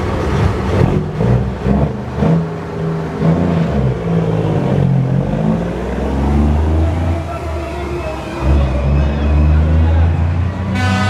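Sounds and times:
truck engine revving: 0.0 - 11.0.

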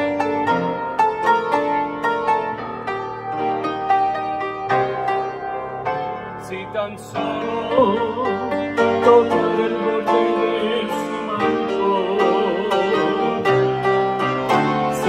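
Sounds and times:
grand piano chords: 0.0 - 15.0
man singing with vibrato: 6.4 - 13.8, 14.7 - 15.0.

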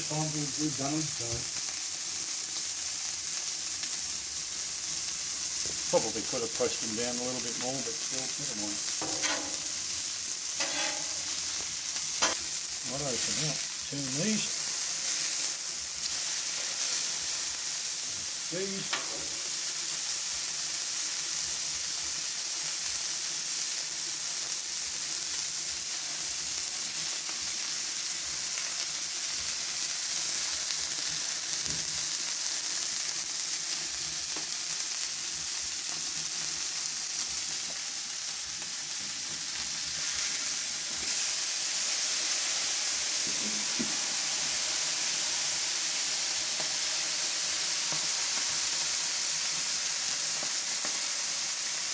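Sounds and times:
burger patties sizzling on griddle: 0.0 - 51.9
steam hissing: 39.4 - 51.9.

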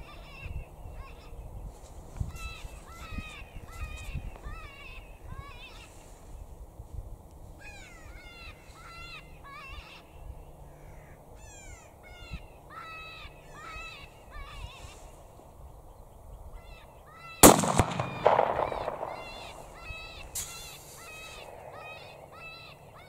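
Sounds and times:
sharp crack with ringing tail: 17.4 - 20.7.

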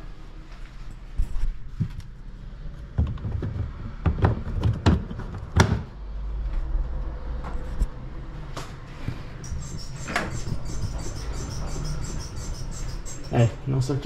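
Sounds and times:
knocks and clunks in car cabin: 2.9 - 5.9.

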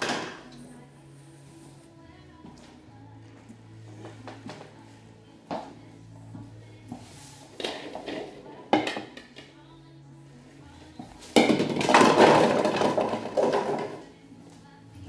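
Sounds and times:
toy bowling pins clattering: 7.6 - 9.5, 11.3 - 14.0.

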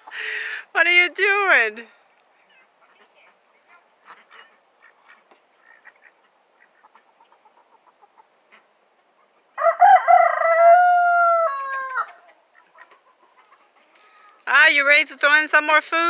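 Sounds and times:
hens clucking softly: 2.6 - 9.6, 11.9 - 14.4
rooster crowing: 9.6 - 12.3.

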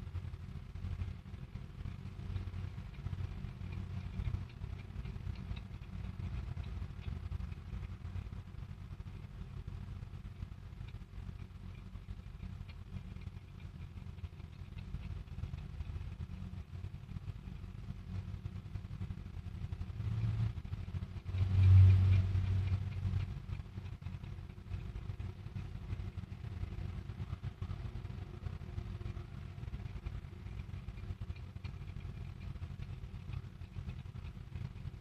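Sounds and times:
traffic rumble: 0.0 - 35.0
vehicle passing: 19.9 - 23.3.

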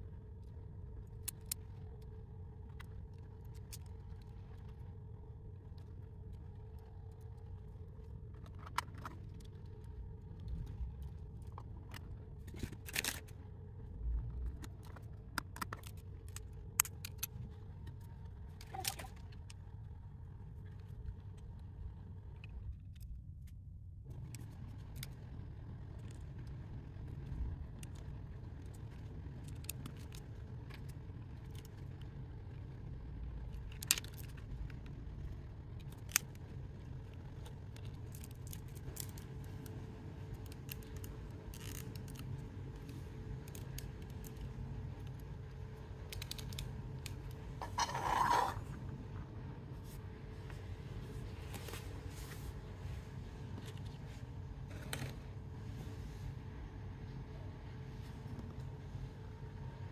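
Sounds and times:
scrape: 47.6 - 48.8.

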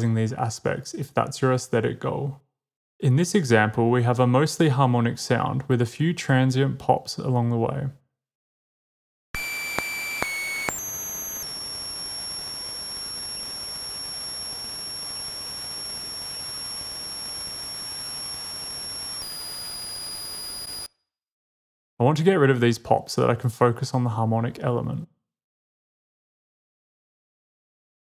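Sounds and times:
high-pitched electronic tone: 9.4 - 20.9.

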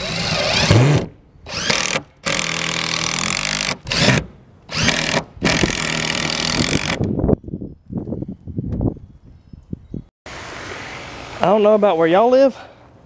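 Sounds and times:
cordless drill driving screws: 0.0 - 7.0.

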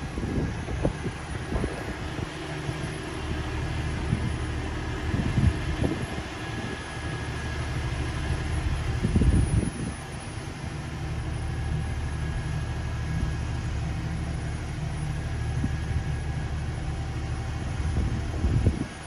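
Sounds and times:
crane engine rumbling: 0.0 - 19.0.

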